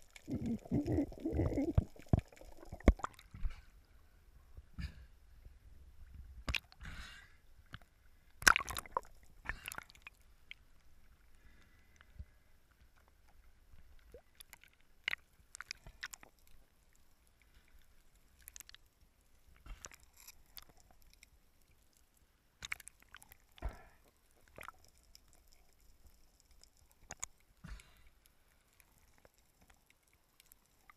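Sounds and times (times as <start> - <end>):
water sloshing and gurgling: 0.0 - 3.9, 7.6 - 12.0, 22.6 - 25.8.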